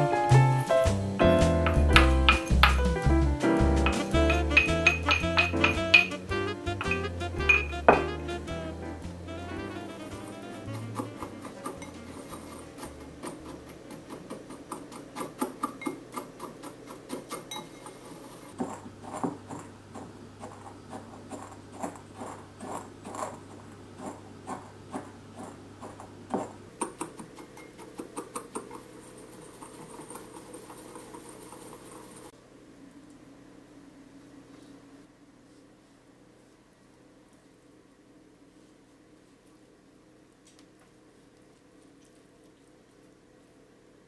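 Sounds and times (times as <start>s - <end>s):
pestle knocking in glass bowl: 3.9s - 6.2s
whisk ticking against glass bowl: 4.3s - 6.2s, 10.6s - 18.0s.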